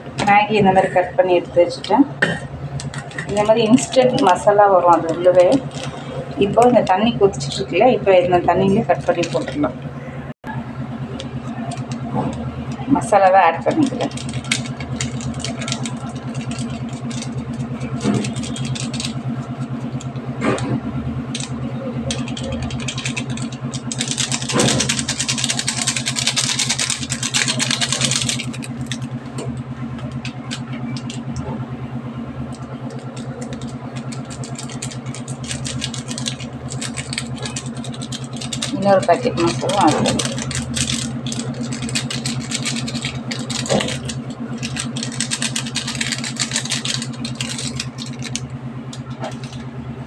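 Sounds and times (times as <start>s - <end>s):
low motor hum: 0.0s - 50.0s
spice sachet rustling: 13.8s - 19.2s, 32.5s - 48.4s.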